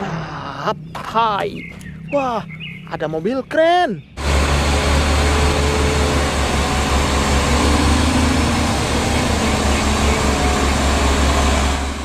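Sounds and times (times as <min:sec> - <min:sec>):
truck engine deep low hum: 0:04.2 - 0:12.0.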